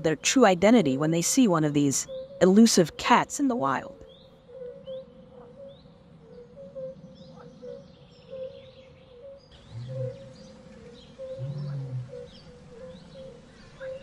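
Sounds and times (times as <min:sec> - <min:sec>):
birds chirping and calling: 0:00.0 - 0:14.0
short low growl: 0:11.4 - 0:12.3.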